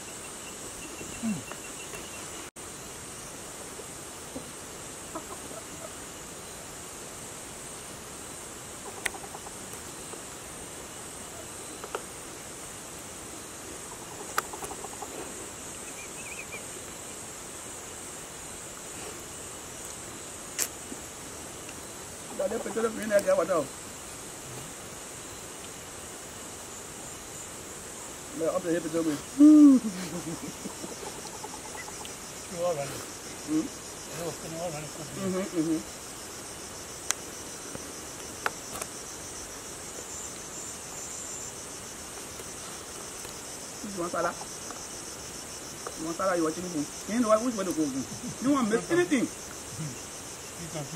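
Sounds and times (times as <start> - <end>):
high-pitched insect drone: 0.0 - 50.9
faint ticks: 8.9 - 10.4.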